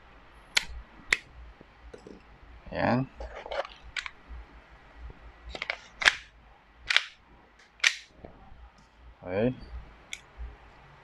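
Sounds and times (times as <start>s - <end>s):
airsoft pistol slide clacks: 6.9s - 8.1s.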